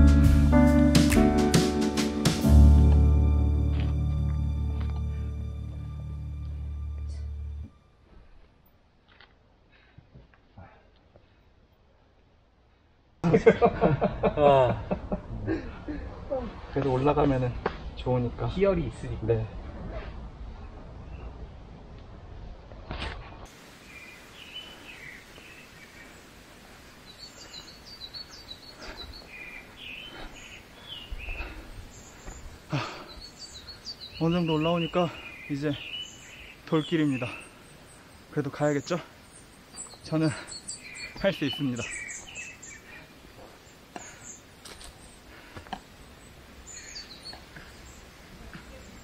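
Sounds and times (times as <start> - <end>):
footsteps on dirt trail: 2.8 - 10.5, 27.1 - 36.5, 38.9 - 49.0
small birds chirping: 23.4 - 49.0.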